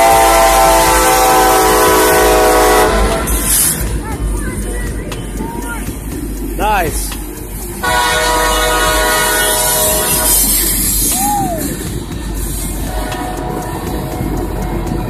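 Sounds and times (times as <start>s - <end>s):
locomotive horn chord: 0.0s - 3.9s, 7.8s - 11.8s, 12.8s - 15.0s
freight cars rumbling on rails: 0.0s - 15.0s.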